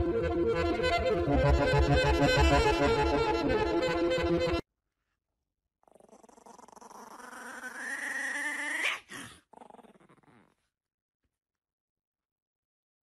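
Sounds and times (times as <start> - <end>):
puppy growling: 5.8 - 10.6.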